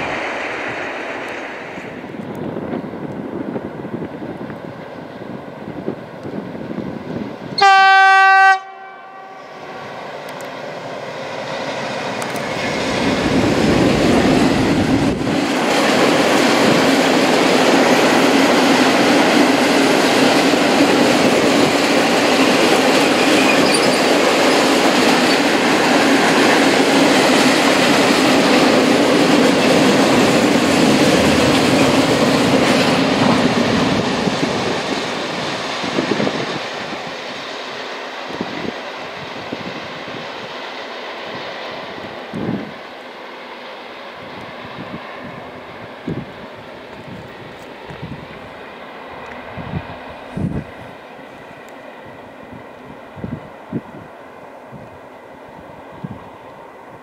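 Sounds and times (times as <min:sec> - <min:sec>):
train horn blast: 0:07.6 - 0:10.0.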